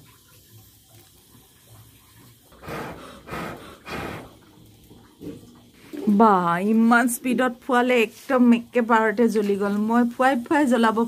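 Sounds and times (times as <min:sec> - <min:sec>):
puffs of air through blowpipe: 0:02.6 - 0:04.4.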